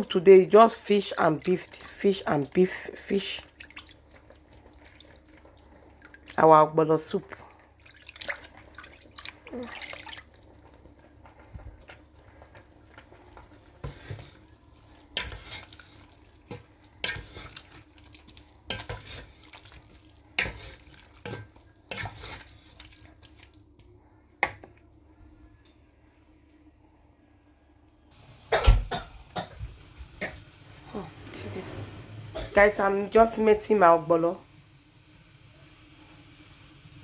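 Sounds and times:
faint steady hum: 0.0 - 37.0
spatula stirring meat in pot: 0.4 - 6.5, 7.7 - 23.6.

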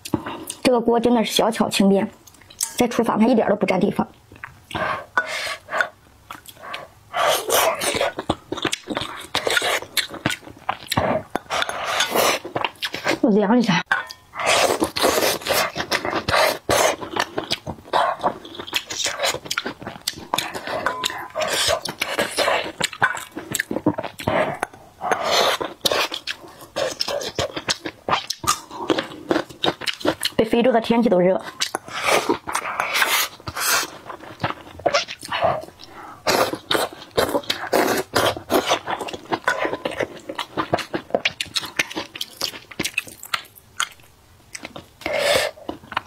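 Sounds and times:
lip smacks and mouth clicks: 2.2 - 2.7
chewing: 4.3 - 13.2, 13.9 - 30.4, 31.4 - 46.0.

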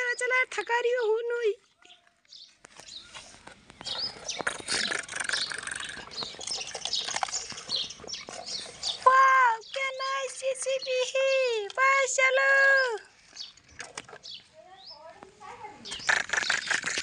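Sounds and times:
birds chirping: 0.0 - 17.0
dirt pattering into plastic toy: 15.8 - 17.0.

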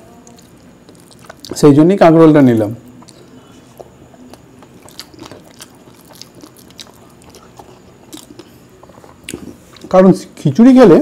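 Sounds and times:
person chewing food: 0.1 - 1.7, 2.8 - 10.0.

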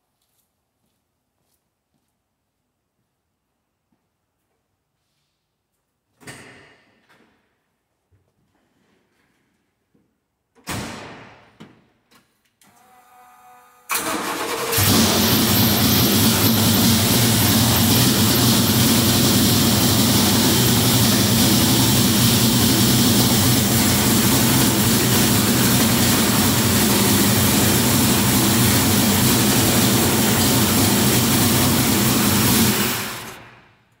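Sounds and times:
car engine idling: 14.1 - 33.6.

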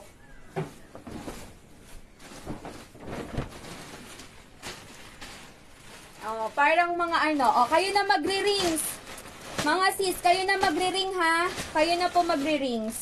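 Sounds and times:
fabric curtain rustling: 0.0 - 13.0
soft knocks of handling: 0.4 - 1.6.

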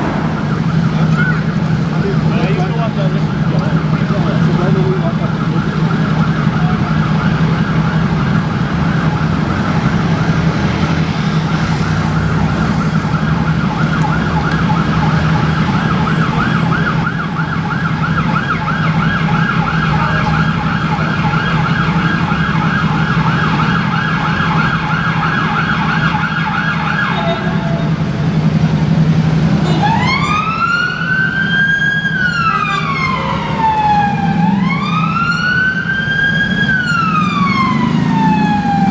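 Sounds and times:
ambulance siren: 0.0 - 38.9
idling traffic drone: 0.0 - 38.9.

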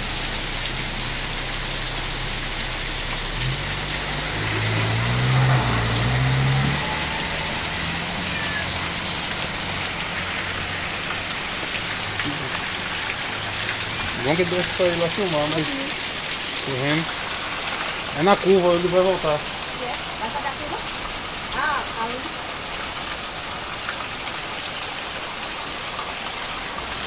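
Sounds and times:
truck engine revving: 0.0 - 21.5
heavy rain falling: 0.0 - 27.0.

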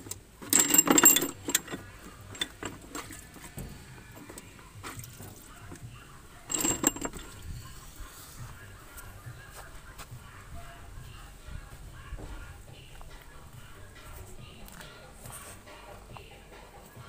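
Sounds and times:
light metallic clicks and clinks: 0.0 - 5.9, 6.5 - 7.6.

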